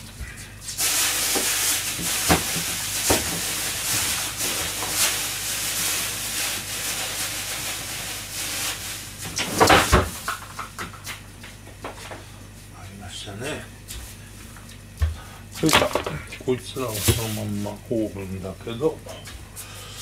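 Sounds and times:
steady hiss: 0.6 - 9.9.

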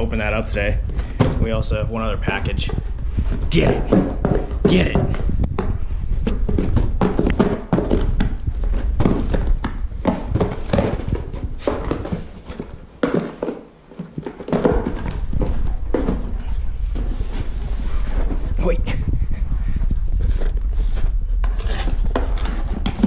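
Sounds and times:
dog pawing cardboard box: 2.7 - 18.4.

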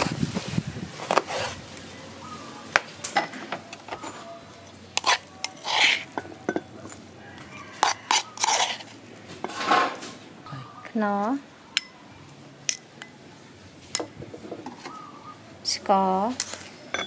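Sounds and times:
utensil scraping bowl: 1.0 - 1.6, 3.7 - 10.2
utensils clinking on crockery: 3.0 - 10.2, 16.4 - 17.0.

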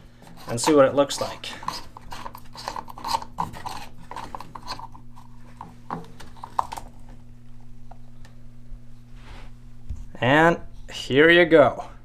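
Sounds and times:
plastic plug scraping in housing: 0.4 - 5.0.

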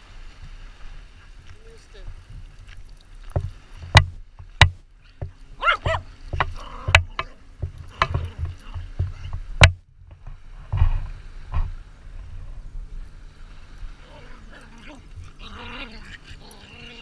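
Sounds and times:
knocks and bumps on camera: 3.3 - 11.8.

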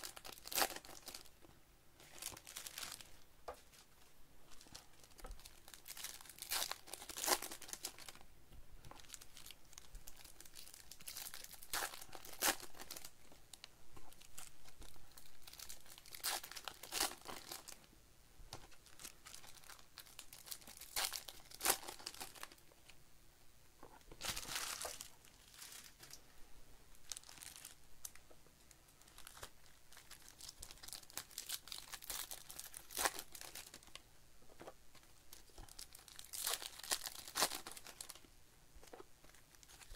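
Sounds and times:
card pack wrappers tearing: 0.0 - 1.3, 35.5 - 38.2
wrapper crinkling: 0.0 - 1.4, 2.0 - 3.9, 4.5 - 8.2, 8.9 - 17.8, 18.7 - 22.6, 24.2 - 26.2, 27.0 - 28.2, 29.0 - 34.0, 34.6 - 39.9.

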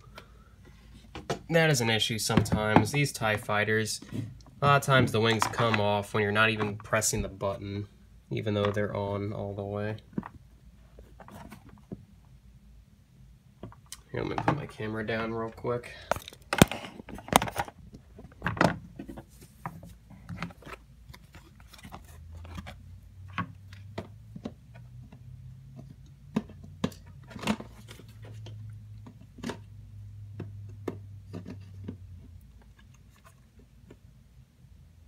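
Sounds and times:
objects being handled: 2.3 - 7.4, 10.0 - 12.2, 13.6 - 34.2.

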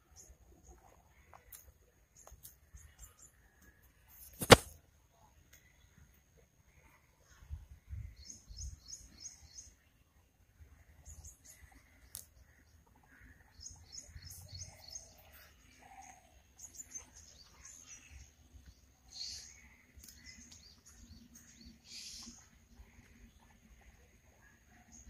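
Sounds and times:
bird chirping: 7.9 - 9.9, 10.9 - 25.0.

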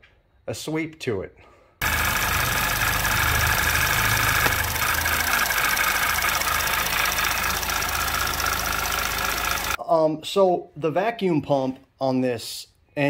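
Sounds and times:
car engine idling: 1.8 - 9.8.

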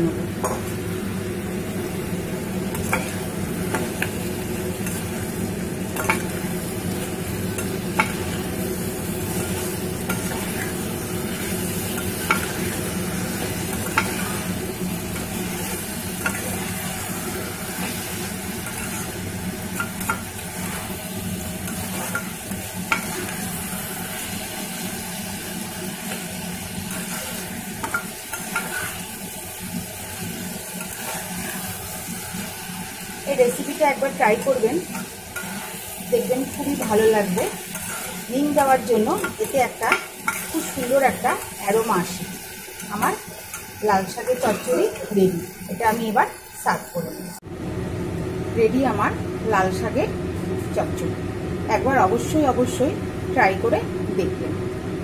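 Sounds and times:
vegetables sizzling: 0.0 - 55.0
spatula scraping a pan: 9.2 - 14.6, 15.2 - 21.0, 21.6 - 24.3, 26.8 - 29.2, 30.8 - 32.1, 34.4 - 41.6.

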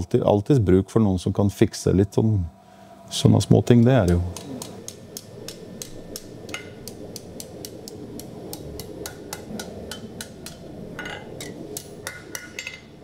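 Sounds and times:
hammer striking steel on anvil: 11.8 - 12.8.

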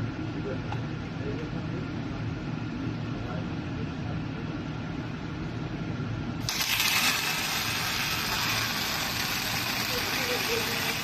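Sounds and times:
low machine hum: 0.0 - 11.0
welding arc hissing: 6.4 - 11.0.

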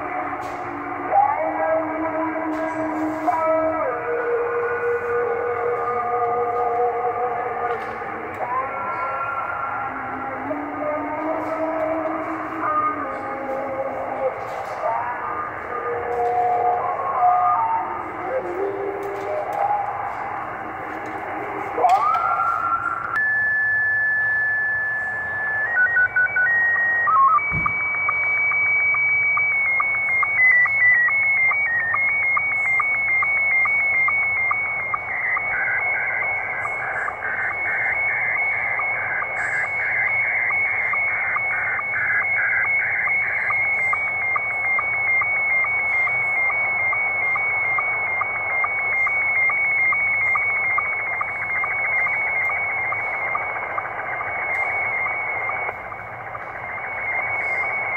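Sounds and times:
radio hiss: 0.0 - 57.9
steady header beeps: 0.0 - 57.9
ticking sync pulse: 25.1 - 57.9.

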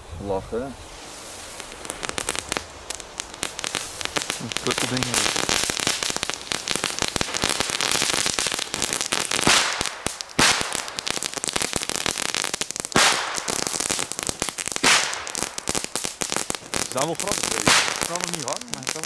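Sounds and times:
ground fireworks crackling: 0.0 - 19.0
firework bangs: 0.8 - 19.0.

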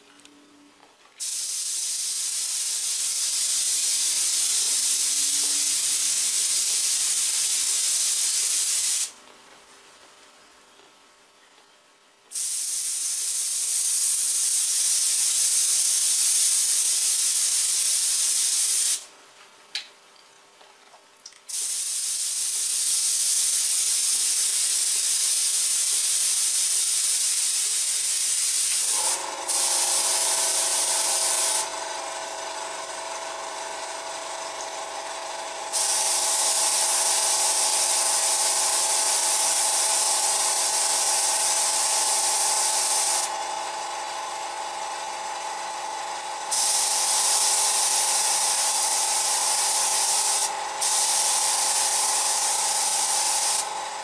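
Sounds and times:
small compressor motor hum: 0.0 - 9.2, 21.5 - 54.0
airbrush spraying hiss: 1.2 - 9.2, 12.3 - 19.1, 21.5 - 31.7, 35.7 - 43.3, 46.5 - 53.7.

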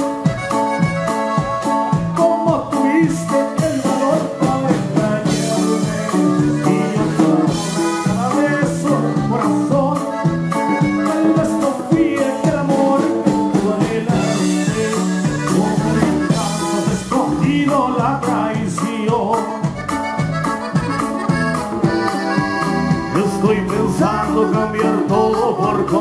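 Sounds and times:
saxophone: 0.0 - 2.2, 3.9 - 11.8, 14.1 - 17.2, 19.6 - 25.3
button accordion: 0.0 - 26.0
drums with steady beat: 0.0 - 26.0.

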